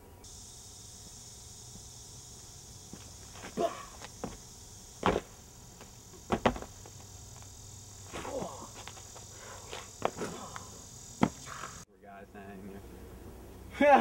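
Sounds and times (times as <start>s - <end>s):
steady high hiss: 0.0s - 14.0s
feet and hands thudding on asphalt: 2.8s - 11.8s.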